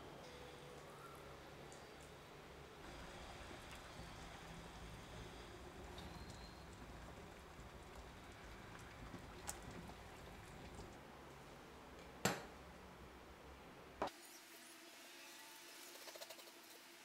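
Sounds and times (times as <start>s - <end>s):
water boiling in a pot: 2.8s - 11.0s.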